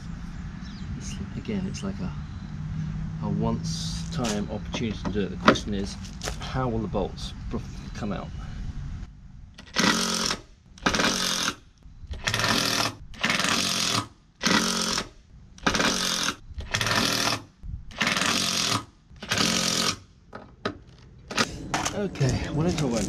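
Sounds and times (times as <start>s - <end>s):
impact driver hammering: 9.6s - 11.6s, 12.2s - 20.0s.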